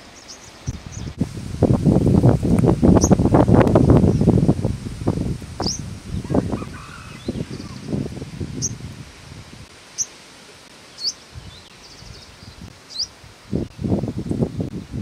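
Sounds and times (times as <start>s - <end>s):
bird chirping: 0.0s - 1.2s, 5.6s - 8.0s, 10.9s - 13.1s
wind noise on microphone: 0.6s - 9.7s, 11.3s - 15.0s.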